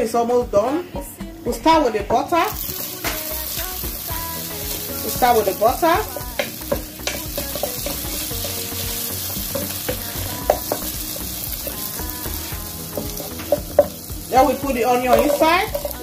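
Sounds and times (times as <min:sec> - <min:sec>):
butter sizzling in frying pan: 0:02.1 - 0:16.0
spatula scraping and tapping pan: 0:04.7 - 0:11.8, 0:12.9 - 0:16.0.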